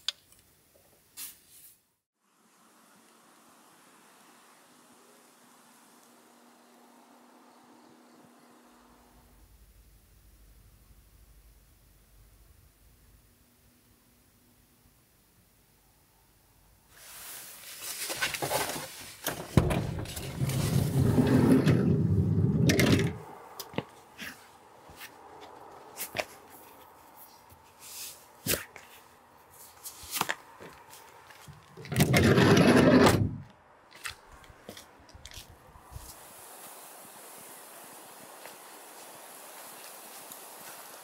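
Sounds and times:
sliding door scraping on track: 19.4s - 23.2s, 31.8s - 33.4s
footsteps: 23.6s - 36.2s.

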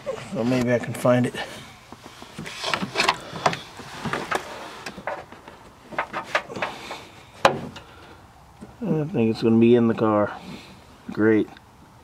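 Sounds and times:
hands rustling in engine bay: 0.0s - 8.8s.

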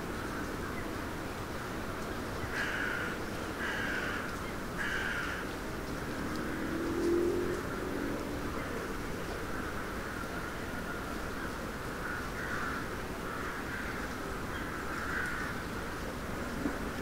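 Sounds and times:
crow cawing: 2.5s - 5.5s, 11.9s - 15.7s.

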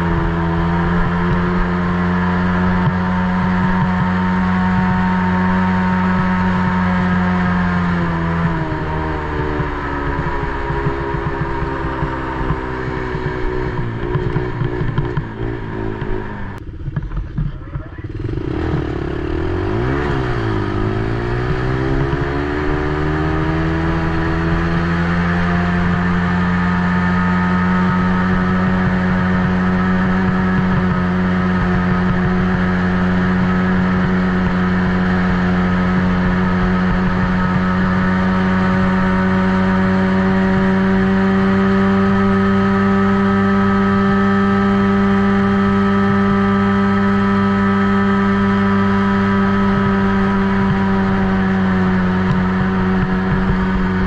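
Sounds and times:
small atv engine running: 0.0s - 54.0s.

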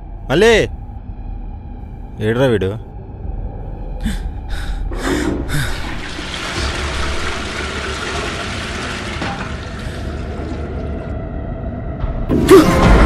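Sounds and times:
tap water running into basin: 5.7s - 11.1s.

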